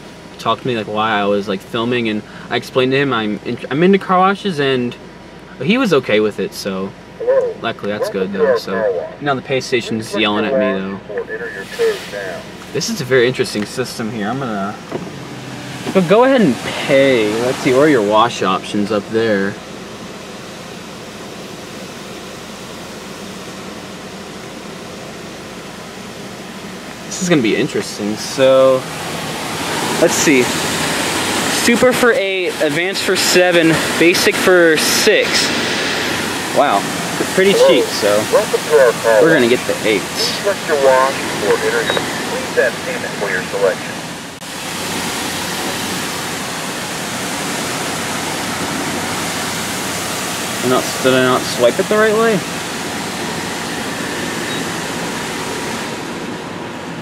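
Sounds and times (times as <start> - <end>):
car wash rushing noise: 0.0 - 57.0
steady hiss: 25.5 - 44.0.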